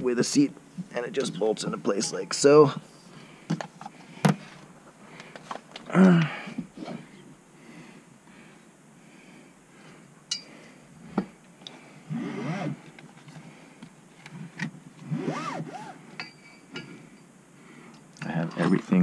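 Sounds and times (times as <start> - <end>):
metal tools clinking and scraping: 16.2 - 17.3.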